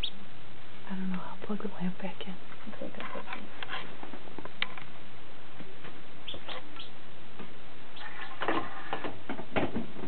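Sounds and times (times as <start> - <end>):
chick peeping in egg: 0.0 - 0.2, 6.2 - 7.0.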